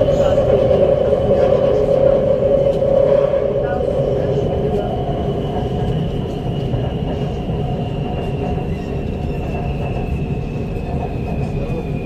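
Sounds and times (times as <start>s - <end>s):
train wheels rumbling on track: 0.0s - 12.0s.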